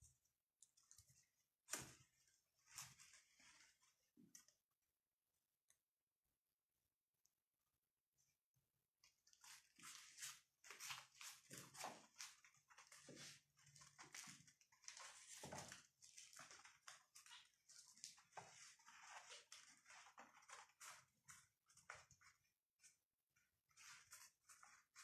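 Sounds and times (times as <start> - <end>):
kitten scratching in cat litter: 9.3 - 23.0, 23.7 - 25.0.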